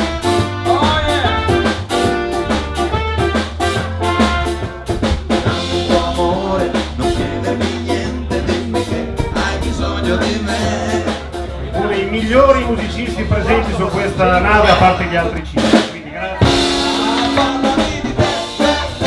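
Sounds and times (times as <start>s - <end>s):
trumpet: 0.0s - 11.5s, 16.4s - 19.0s
saxophone: 0.0s - 11.6s
drum kit beat: 0.0s - 19.0s
swing band playing: 0.0s - 19.0s.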